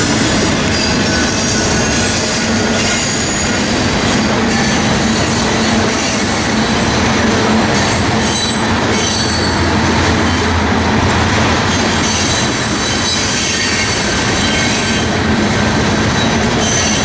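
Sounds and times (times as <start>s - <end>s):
steel wheels rumbling on rails: 0.0s - 17.0s
high-pitched wheel squeal: 7.8s - 10.5s, 16.2s - 17.0s.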